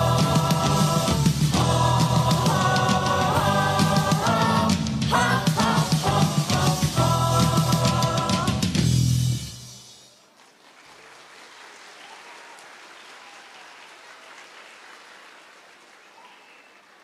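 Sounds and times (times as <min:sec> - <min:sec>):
choir song music: 0:00.0 - 0:10.2
audience applauding: 0:10.1 - 0:17.0.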